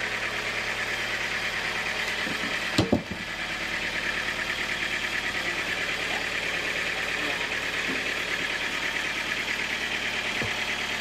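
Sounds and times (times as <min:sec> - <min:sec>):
band sawmill running: 0:00.0 - 0:11.0
heavy thuds of log: 0:02.2 - 0:03.3, 0:10.4 - 0:10.7.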